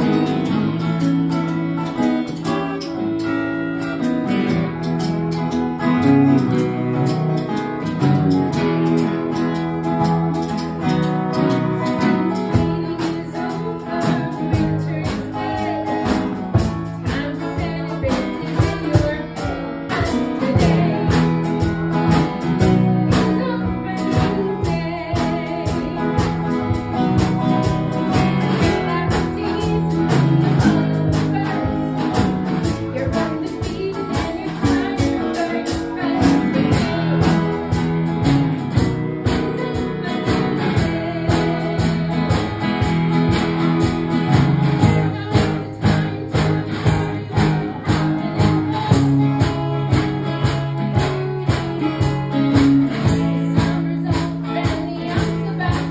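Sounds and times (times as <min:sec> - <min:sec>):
strummed acoustic guitar: 0:00.0 - 0:55.9
woman singing into microphone: 0:00.0 - 0:55.9.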